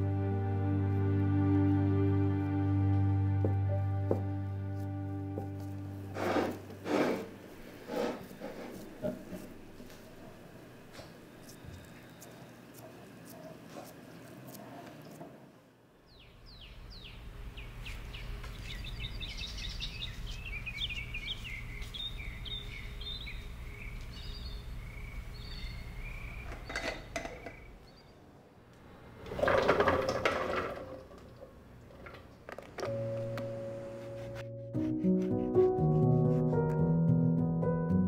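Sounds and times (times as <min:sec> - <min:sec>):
birds chirping: 0:16.0 - 0:28.4
steady low hum: 0:16.4 - 0:26.5.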